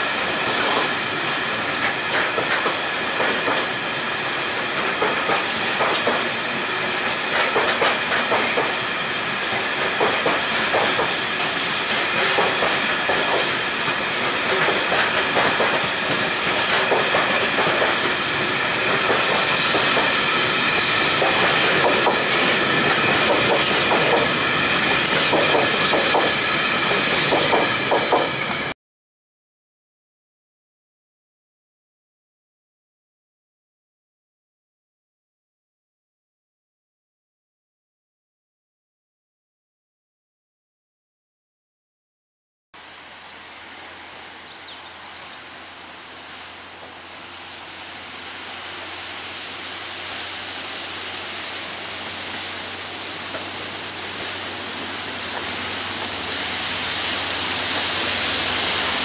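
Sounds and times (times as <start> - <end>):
freight train rumble: 0.0 - 28.7, 42.8 - 59.0
wheels clickety-clack over rail joints: 0.0 - 28.7, 42.9 - 47.4, 50.8 - 59.0
high-pitched wheel squeal: 11.4 - 12.2, 15.8 - 16.6.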